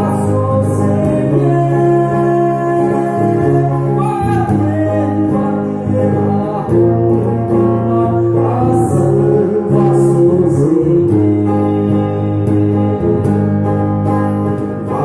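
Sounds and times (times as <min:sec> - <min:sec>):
electric guitar: 0:00.0 - 0:15.0
man singing into a microphone: 0:00.0 - 0:15.0.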